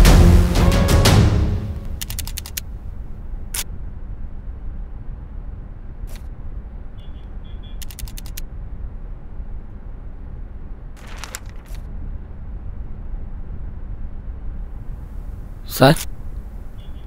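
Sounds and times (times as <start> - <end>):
quick sharp clicks: 1.8 - 2.7, 7.8 - 8.5.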